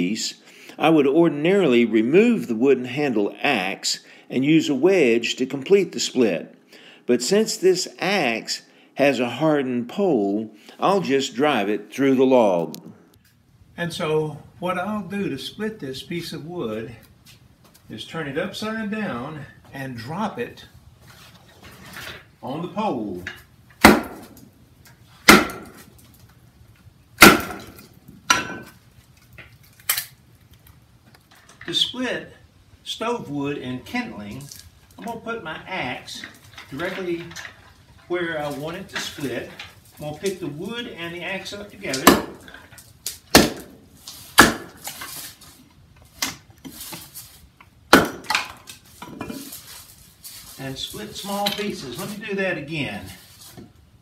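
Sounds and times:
axe knocking on chopping block: 0:23.8 - 0:24.3, 0:25.3 - 0:25.8, 0:27.2 - 0:27.8, 0:42.0 - 0:42.4, 0:44.4 - 0:44.8, 0:47.9 - 0:48.4
axe splitting wood on chopping block: 0:23.8 - 0:24.4, 0:25.2 - 0:25.9, 0:27.2 - 0:28.8, 0:41.9 - 0:42.5, 0:43.1 - 0:45.1, 0:47.9 - 0:48.7.

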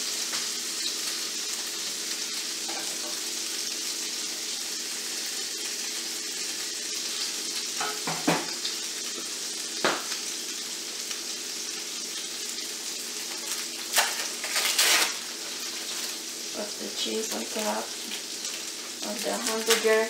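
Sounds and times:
patties sizzling in frying pan: 0:00.0 - 0:20.0.

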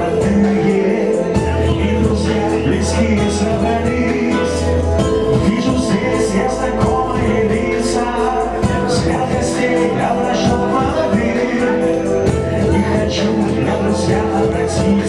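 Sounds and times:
song with steady beat: 0:00.0 - 0:15.0.

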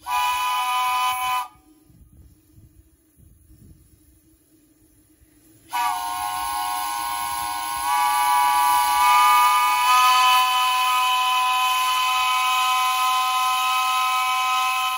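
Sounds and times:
steam whistle chord blast: 0:00.0 - 0:01.8, 0:05.7 - 0:14.9.

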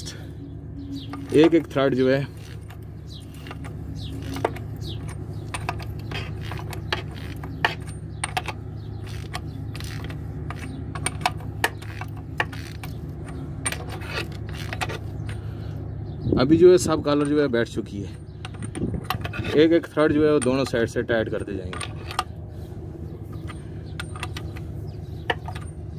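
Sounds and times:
steady low hum: 0:00.0 - 0:25.9
ratchet clicking: 0:02.4 - 0:15.4.

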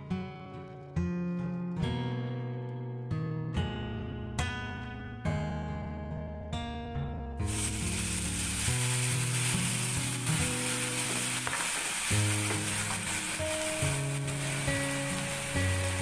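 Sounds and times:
soft background music: 0:05.6 - 0:16.0
vegetables sizzling in a frying pan: 0:07.4 - 0:16.0.

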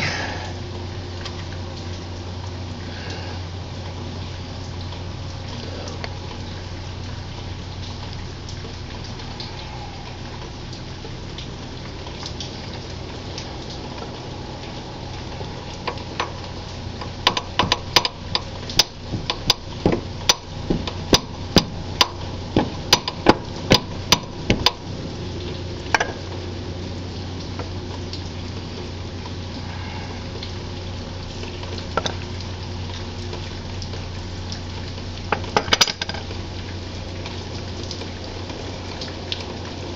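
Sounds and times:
steady low hum: 0:00.0 - 0:39.9
sharp metallic taps: 0:17.2 - 0:24.8.

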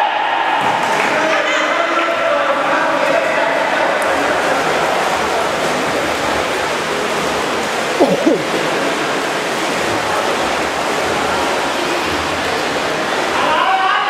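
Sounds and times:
echoing pool splashing: 0:00.2 - 0:14.0
falling-pitched sound: 0:08.0 - 0:08.5.

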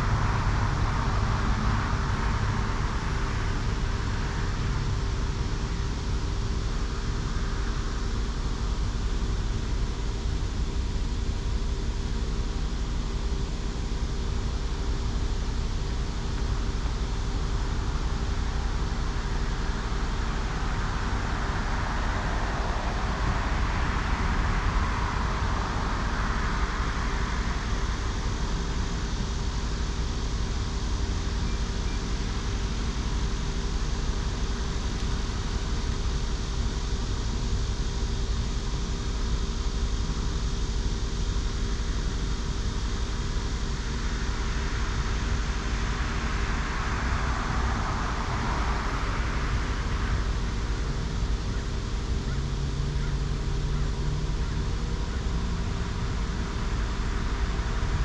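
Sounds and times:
vehicle approaching: 0:00.0 - 0:05.8, 0:18.5 - 0:36.0, 0:44.3 - 0:58.0
vehicle tyre noise passing: 0:00.0 - 0:06.2, 0:18.5 - 0:31.4, 0:44.3 - 0:58.0
highway traffic rumble: 0:00.0 - 0:58.0.

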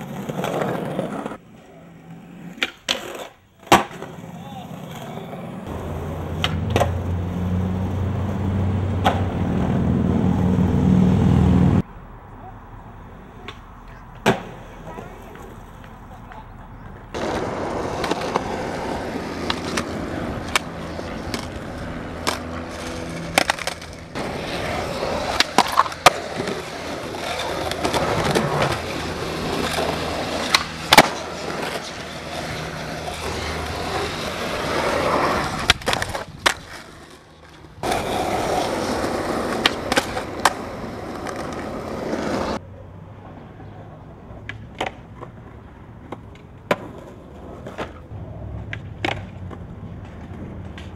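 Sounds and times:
skateboards rolling on concrete: 0:00.0 - 0:50.9
skateboard clacks: 0:02.5 - 0:07.0, 0:09.0 - 0:09.8, 0:13.4 - 0:42.6, 0:43.3 - 0:50.9.

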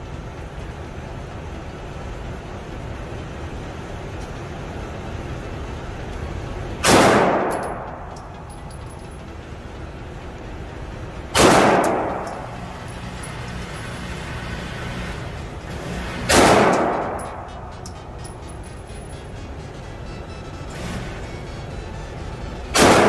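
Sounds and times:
handgun shots echoing indoors: 0:06.8 - 0:08.8, 0:11.3 - 0:12.9, 0:16.1 - 0:18.6, 0:22.7 - 0:23.0.

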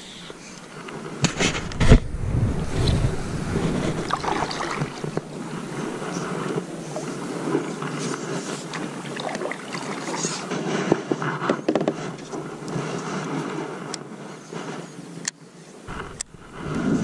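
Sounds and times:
wind on microphone: 0:00.3 - 0:15.0, 0:15.9 - 0:17.0
paddle strokes splashing water: 0:01.3 - 0:11.3.

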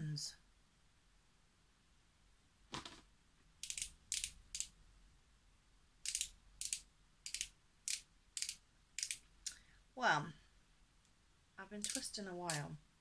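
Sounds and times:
handling noise: 0:02.7 - 0:03.1
ratcheting clicks of twist pen: 0:03.6 - 0:04.7, 0:06.0 - 0:09.6, 0:11.8 - 0:12.7.

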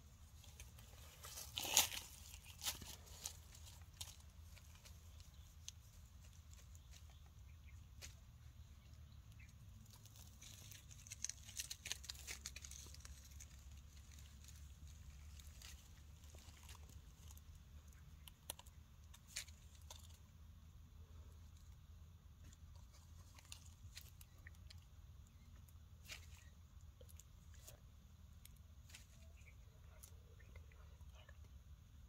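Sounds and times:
dry leaves crackling and rustling: 0:00.2 - 0:07.2, 0:09.8 - 0:20.2.

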